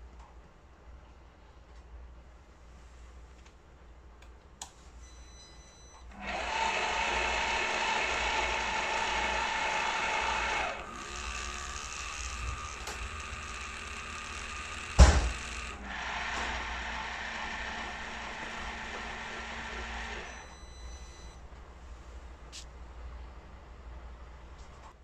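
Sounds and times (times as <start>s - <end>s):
coffee machine running: 6.1s - 21.4s.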